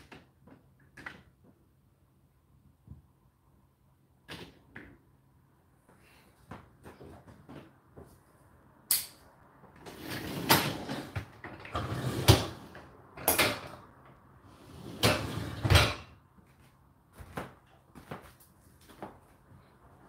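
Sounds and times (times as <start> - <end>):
dishwasher racks sliding and rattling: 9.8 - 13.8, 14.6 - 16.1.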